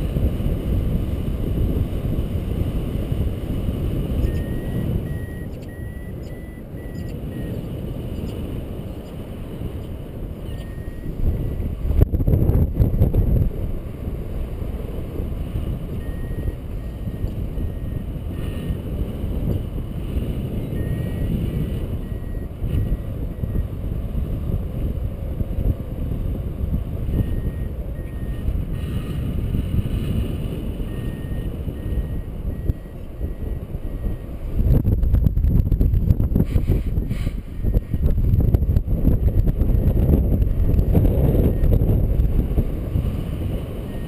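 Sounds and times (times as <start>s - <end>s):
wind buffeting microphone: 0.0s - 44.0s
faint high beeps: 4.2s - 9.1s, 9.8s - 11.7s, 15.9s - 18.8s, 20.6s - 23.7s, 27.0s - 29.2s, 30.8s - 34.4s, 37.6s - 38.1s, 40.4s - 41.8s.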